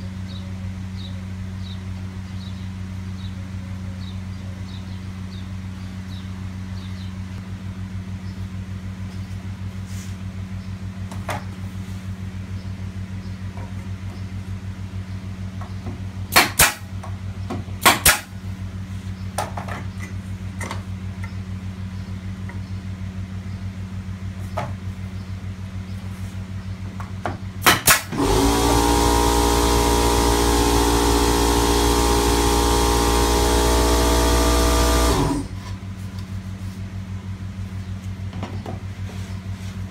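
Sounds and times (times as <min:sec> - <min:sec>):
angle grinder whining: 0:28.1 - 0:35.6
low steady hum: 0:28.5 - 0:39.9.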